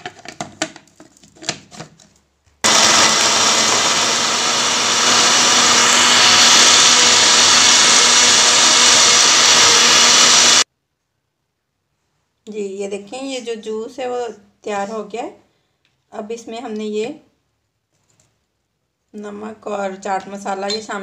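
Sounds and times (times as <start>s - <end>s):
blender motor running: 2.6s - 10.7s.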